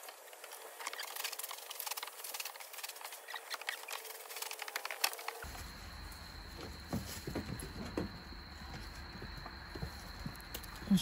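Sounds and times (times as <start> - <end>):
steady low hum: 5.3 - 11.0.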